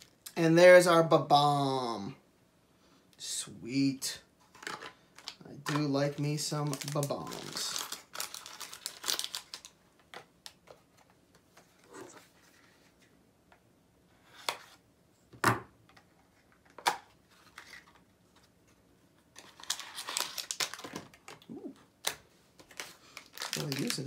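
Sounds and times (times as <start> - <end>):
packaging crinkling and tearing: 4.6 - 9.8, 19.3 - 24.0
light clicks of packaging: 22.0 - 24.0.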